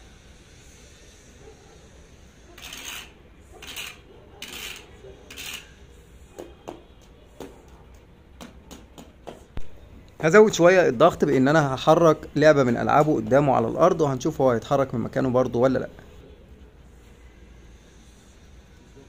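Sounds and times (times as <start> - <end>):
stick scraping concrete floor: 2.5 - 6.6
light taps and knocks: 6.4 - 9.7.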